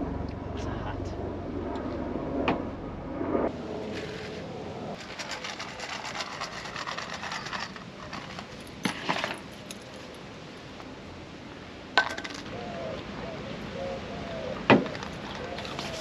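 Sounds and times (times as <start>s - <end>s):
gear clicks scrapes and jingling: 5.0s - 10.0s.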